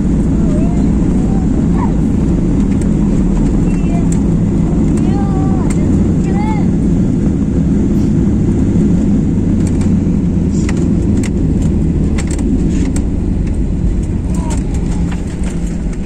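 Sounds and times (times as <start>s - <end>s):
airliner cabin rumble: 0.0s - 16.0s.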